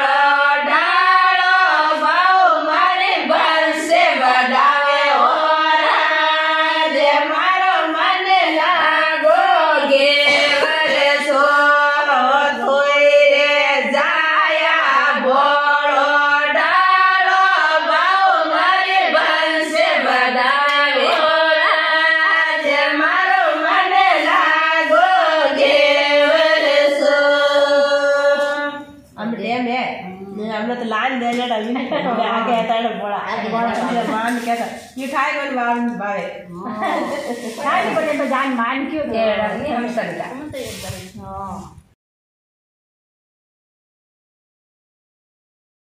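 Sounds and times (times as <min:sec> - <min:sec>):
women singing folk song: 0:00.0 - 0:29.1.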